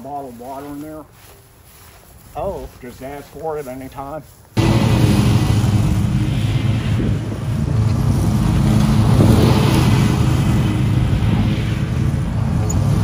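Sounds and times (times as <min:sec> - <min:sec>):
riding mowers droning: 0:04.4 - 0:13.0.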